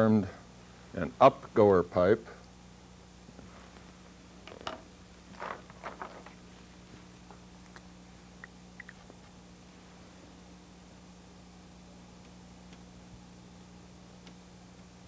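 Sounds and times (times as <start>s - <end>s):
steady low hum: 0.0s - 15.0s
soft clicks and rustles: 3.3s - 7.8s.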